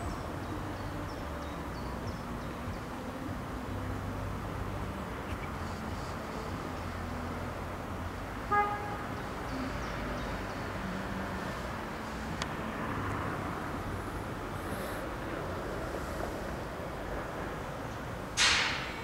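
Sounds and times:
train horn toot: 0:08.5 - 0:09.2.

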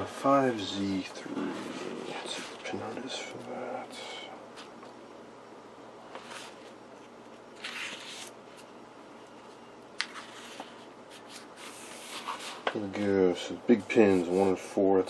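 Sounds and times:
paper pages flipping: 0:06.1 - 0:08.7, 0:10.0 - 0:12.8.

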